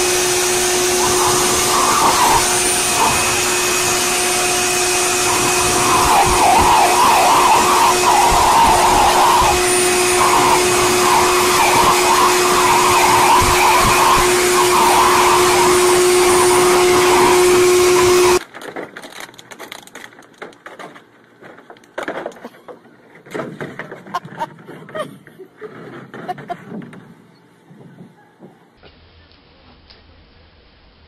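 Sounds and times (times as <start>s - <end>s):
electric blower motor whirring: 0.0s - 18.4s.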